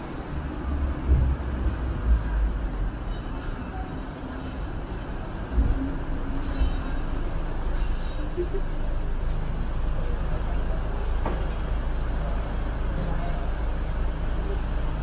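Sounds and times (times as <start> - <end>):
tram rumbling: 0.0 - 15.0
faint high squeal: 6.4 - 8.2.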